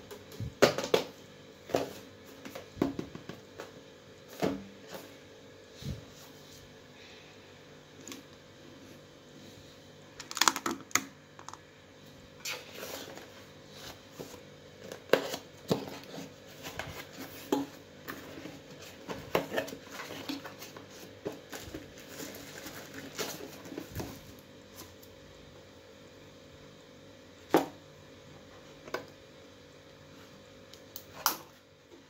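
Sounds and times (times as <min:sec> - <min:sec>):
plastic wrap crinkling: 0:18.7 - 0:24.4.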